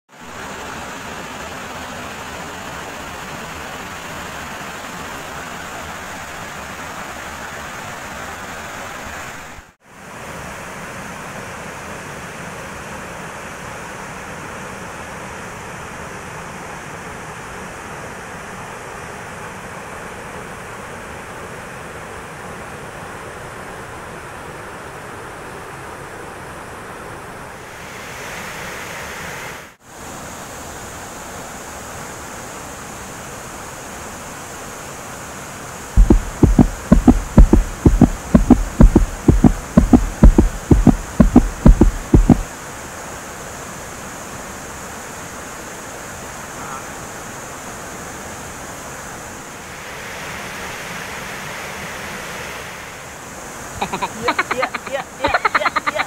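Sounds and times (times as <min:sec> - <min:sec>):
waterfall rushing: 0:00.2 - 0:10.4, 0:36.0 - 0:42.6
rapid low thumps: 0:36.0 - 0:42.5.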